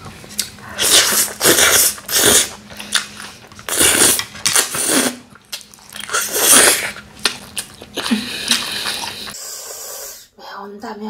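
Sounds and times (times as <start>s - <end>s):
person slurping noodles: 0.8s - 2.6s, 3.7s - 5.2s, 6.1s - 7.0s, 8.0s - 10.3s.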